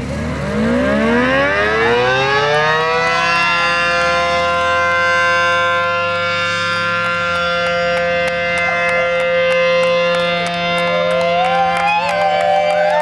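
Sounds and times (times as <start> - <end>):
siren steady tone: 0.0 - 13.0.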